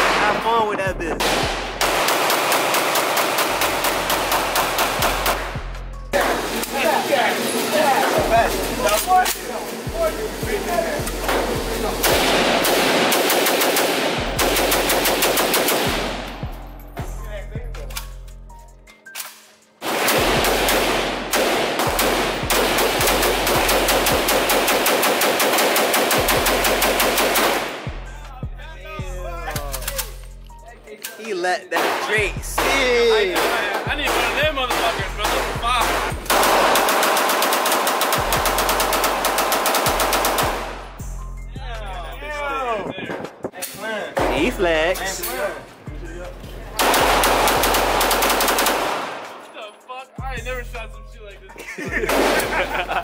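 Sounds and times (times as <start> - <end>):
rapid gunfire: 1.2 - 5.5, 11.3 - 16.3, 19.8 - 27.9, 31.8 - 40.8, 46.8 - 49.4, 52.1 - 52.7.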